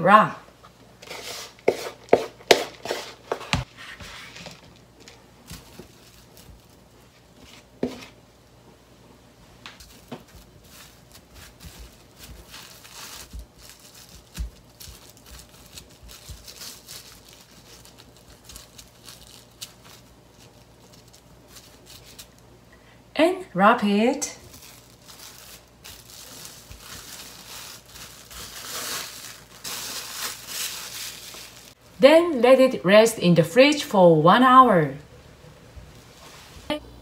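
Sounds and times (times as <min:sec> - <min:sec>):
spatula knocking and scraping bowl: 0:01.0 - 0:03.7
cling wrap crinkling: 0:04.2 - 0:08.2, 0:09.7 - 0:22.4, 0:24.4 - 0:31.8.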